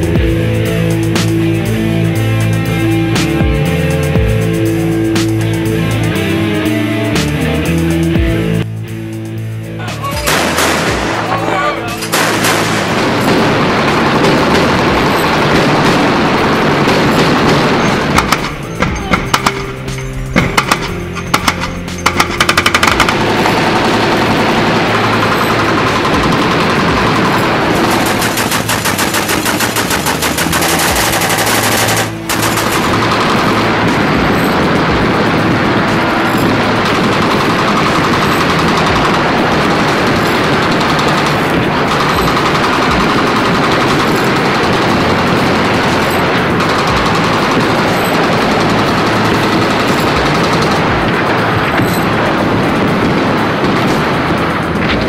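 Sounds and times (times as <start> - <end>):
machine gun firing rapid bursts: 10.3 - 18.7, 20.5 - 54.4.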